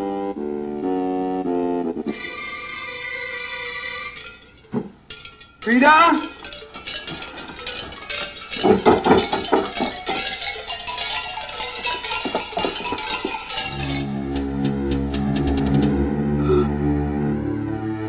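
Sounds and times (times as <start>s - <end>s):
wavering cry-like tone: 2.1s - 4.5s, 16.0s - 17.9s
metallic clanks and knocks: 4.2s - 16.0s
low music drone: 13.6s - 18.0s.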